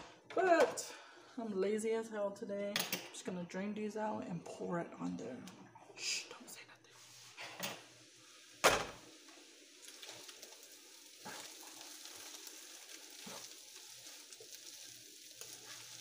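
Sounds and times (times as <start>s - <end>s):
potatoes and beef sizzling in pan: 7.0s - 16.0s.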